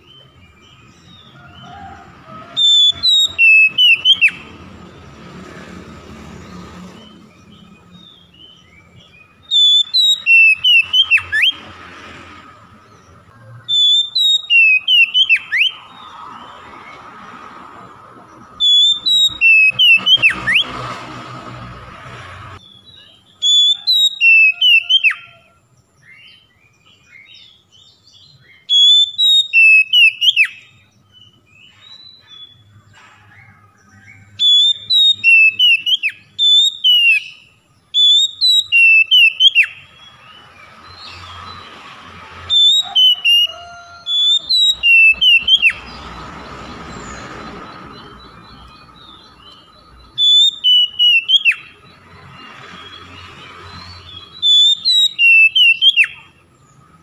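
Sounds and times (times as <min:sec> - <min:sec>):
bird singing whistled phrases: 0:02.6 - 0:04.4, 0:07.9 - 0:11.6, 0:13.7 - 0:16.1, 0:18.6 - 0:20.7, 0:22.6 - 0:25.4, 0:27.0 - 0:32.6, 0:34.4 - 0:40.4, 0:42.5 - 0:45.8, 0:48.4 - 0:51.8, 0:54.0 - 0:56.3.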